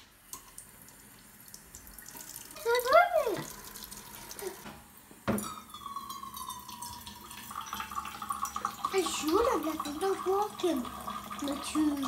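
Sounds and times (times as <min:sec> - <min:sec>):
tap water running into sink: 0:00.3 - 0:12.0
knock: 0:05.3 - 0:05.5
water ringing in metal cup: 0:05.4 - 0:12.0.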